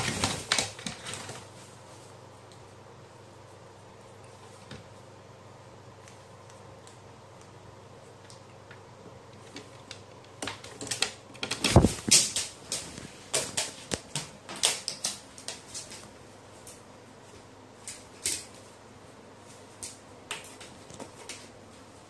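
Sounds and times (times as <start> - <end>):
claws clicking on hard surface: 9.5 - 16.0.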